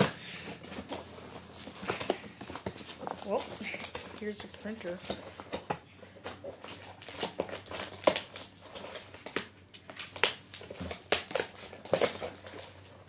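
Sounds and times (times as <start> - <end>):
cardboard rustling and scraping: 0.0 - 9.3, 10.6 - 13.0.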